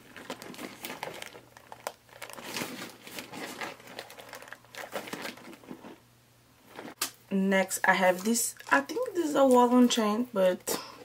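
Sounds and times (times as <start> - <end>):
plastic wrap crinkling: 0.0 - 6.0.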